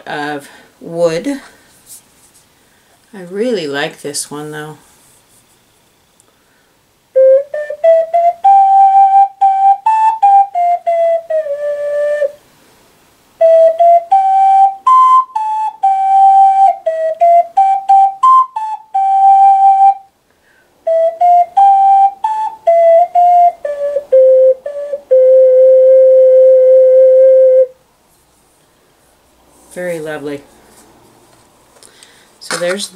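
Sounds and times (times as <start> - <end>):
ocarina melody: 7.1 - 12.4, 13.4 - 20.1, 20.8 - 27.8.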